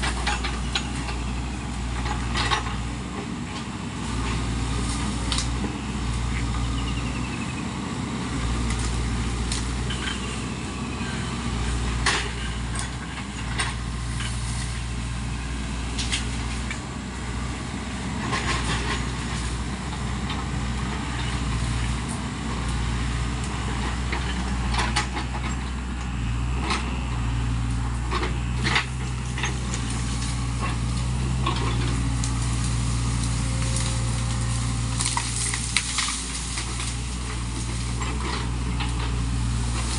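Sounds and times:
diesel engine running: 0:00.0 - 0:39.9
bamboo cracking and knocking: 0:04.2 - 0:05.7, 0:15.6 - 0:16.8, 0:28.1 - 0:39.9.

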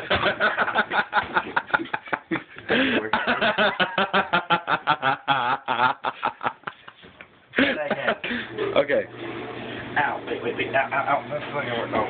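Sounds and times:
man laughing: 0:00.0 - 0:08.6.

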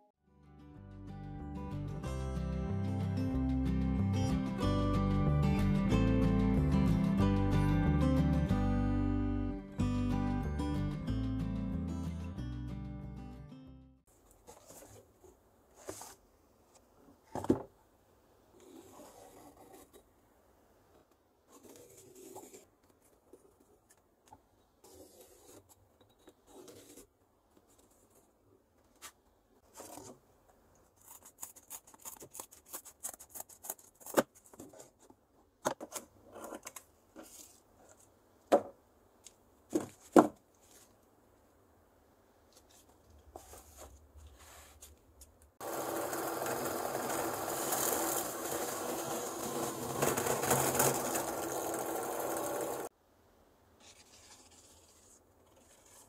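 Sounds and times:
cardboard rustling: 0:14.3 - 0:16.2, 0:42.5 - 0:45.0.

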